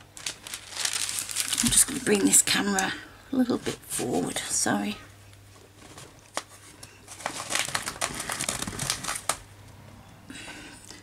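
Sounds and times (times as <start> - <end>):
rustling and crinkling: 0.0 - 4.4, 5.3 - 9.4
faint low hum: 0.0 - 11.0.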